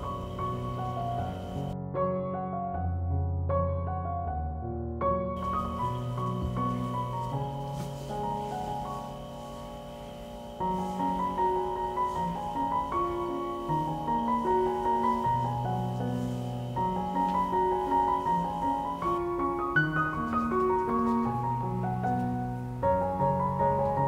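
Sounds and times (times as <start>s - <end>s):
instrumental background music: 0.0s - 24.0s.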